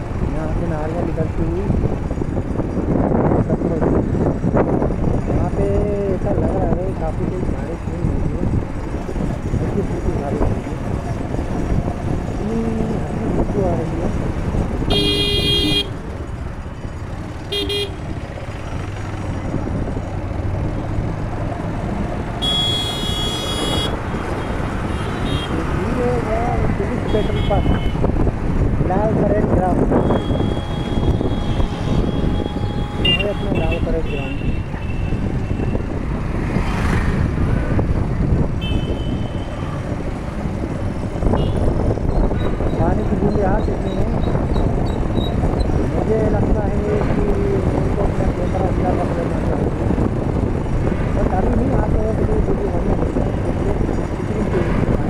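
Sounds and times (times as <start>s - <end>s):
road engine and wind rumble: 0.0s - 55.0s
vehicle horn honking: 14.9s - 16.0s, 17.5s - 18.0s, 22.4s - 24.0s, 24.9s - 25.6s, 27.1s - 28.0s, 30.0s - 35.7s, 38.6s - 39.6s, 41.4s - 41.7s.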